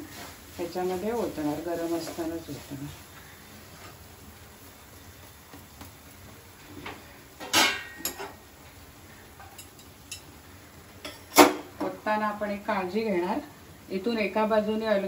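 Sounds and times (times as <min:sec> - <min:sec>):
spatula clattering on steel plate: 0:07.4 - 0:08.4.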